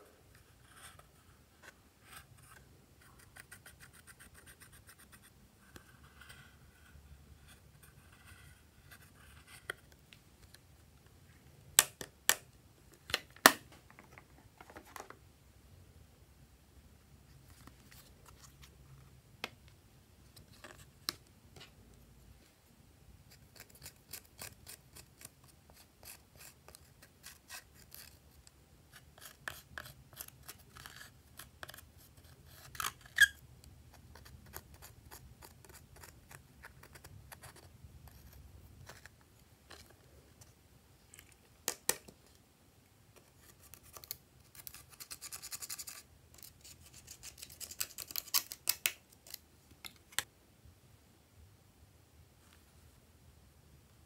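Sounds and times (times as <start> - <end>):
stick scraping eyeshadow powder: 28.9 - 33.4.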